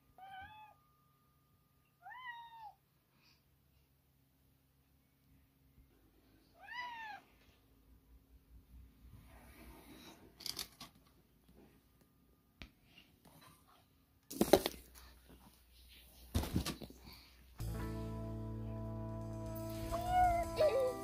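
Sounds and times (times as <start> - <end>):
cat meowing: 0.2 - 0.8, 2.0 - 2.8, 6.6 - 7.3.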